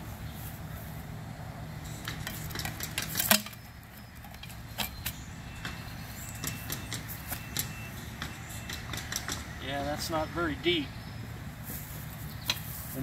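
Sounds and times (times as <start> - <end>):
sharp clicks and knocks: 2.0 - 5.8, 6.4 - 9.6.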